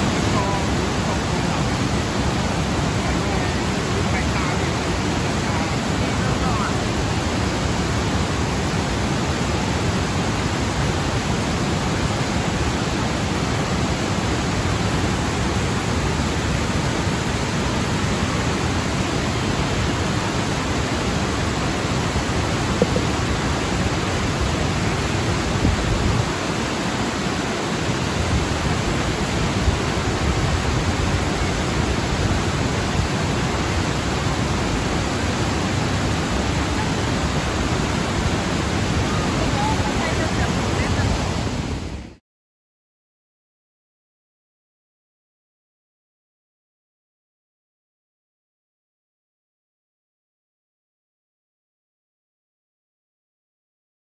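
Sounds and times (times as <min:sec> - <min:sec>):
waterfall rushing over rocks: 0:00.0 - 0:42.2.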